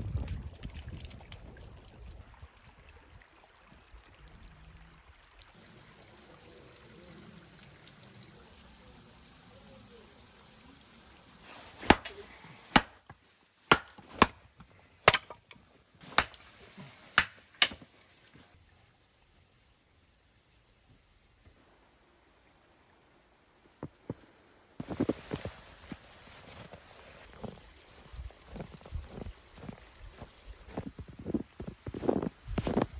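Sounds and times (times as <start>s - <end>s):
hatchet chopping wood: 11.8s - 14.4s, 15.0s - 16.4s, 17.1s - 17.8s.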